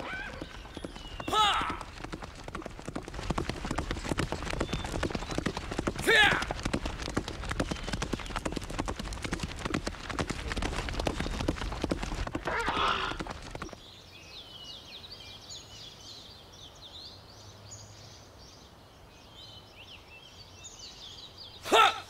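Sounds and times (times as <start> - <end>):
horse hooves clip-clopping: 0.0 - 13.8.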